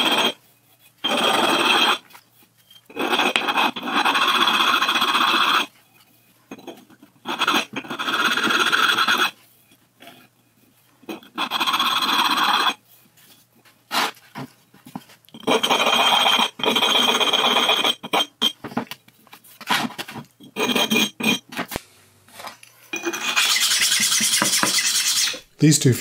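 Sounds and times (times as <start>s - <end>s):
sharpening stone rasping on metal: 1.0s - 5.7s, 7.2s - 9.4s, 15.4s - 18.3s, 23.0s - 25.5s.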